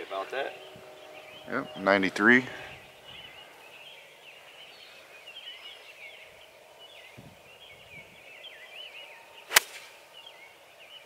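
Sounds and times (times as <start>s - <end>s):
birds chirping and warbling: 0.0s - 11.0s
outdoor background noise: 0.0s - 11.0s.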